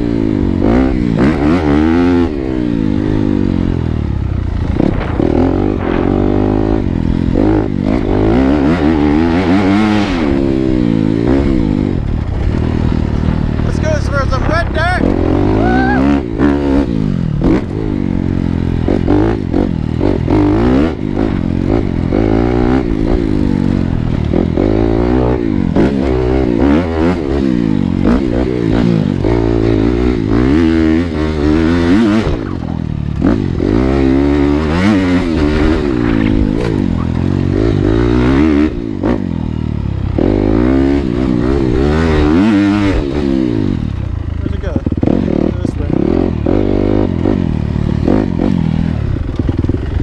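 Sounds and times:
dirt bike engine revving: 0:00.0 - 0:50.0.

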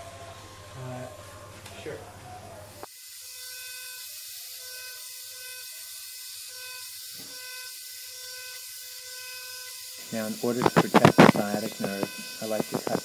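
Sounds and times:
bone saw whining: 0:06.4 - 0:13.0.

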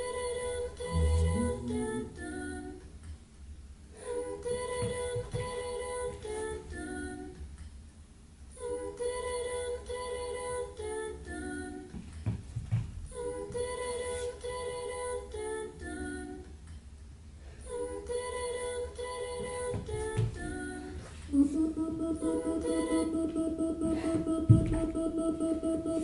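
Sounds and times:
woman singing wordless phrase: 0:00.7 - 0:02.8, 0:18.1 - 0:26.0.

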